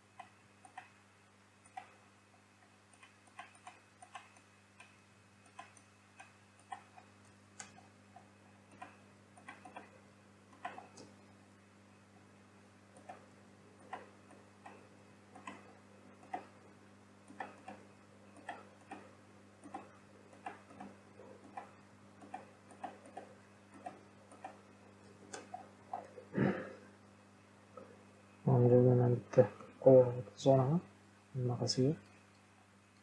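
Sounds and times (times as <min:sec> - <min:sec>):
low electrical hum: 0:00.0 - 0:33.0.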